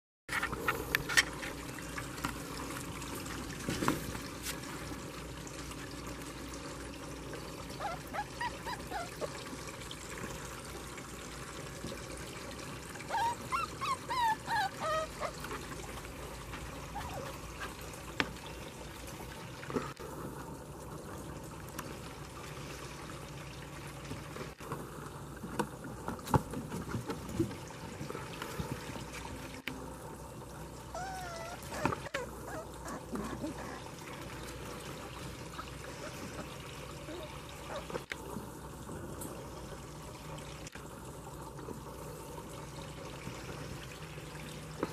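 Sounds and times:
puppies whimpering: 7.8 - 9.4, 13.1 - 15.8, 16.9 - 17.5, 30.9 - 33.9.

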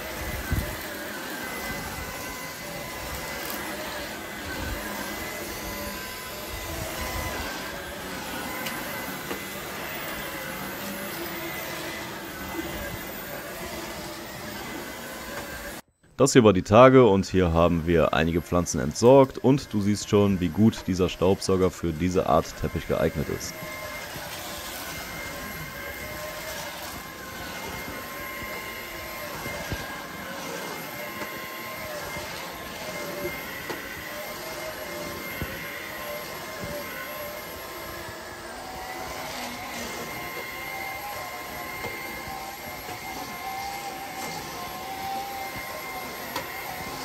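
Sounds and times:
stick vacuum running on carpet: 0.0 - 15.9, 17.4 - 47.0.

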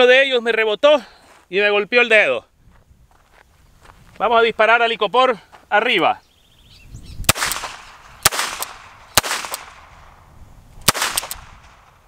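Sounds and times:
revolver gunshots: 7.3 - 10.2, 10.8 - 12.0.

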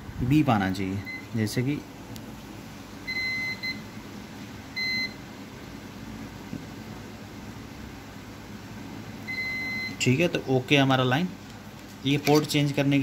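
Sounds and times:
multimeter continuity beeps: 1.0 - 1.4, 3.0 - 3.9, 4.8 - 5.2, 9.2 - 10.2.

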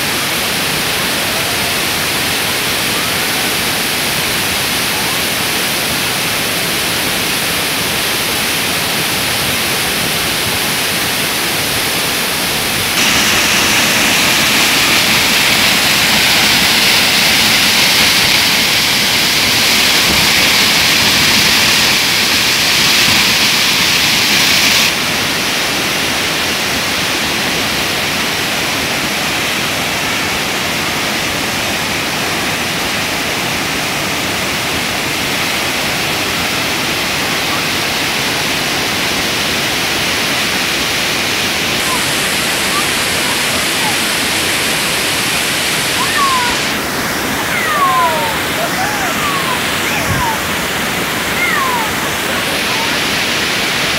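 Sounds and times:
waterfall crashing over rocks: 0.0 - 53.9.

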